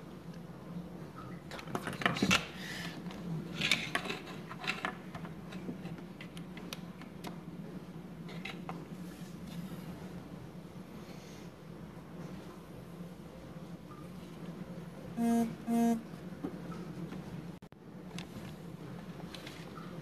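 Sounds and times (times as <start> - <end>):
faint steady hum: 5.2 - 20.0.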